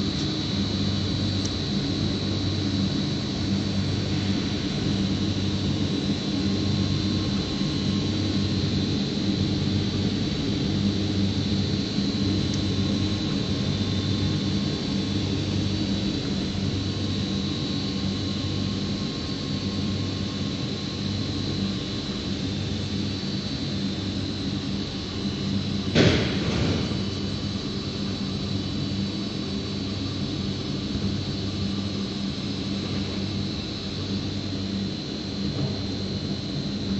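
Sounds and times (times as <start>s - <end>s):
machine hum and air rush: 0.0s - 36.9s
loud bang: 25.9s - 27.0s.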